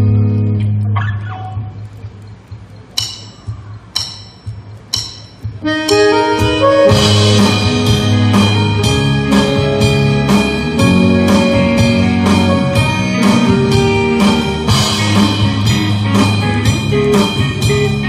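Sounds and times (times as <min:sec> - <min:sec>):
sharp clicks: 0:01.7 - 0:06.1
live band playing: 0:04.4 - 0:18.0
keyboard intro: 0:05.6 - 0:18.0.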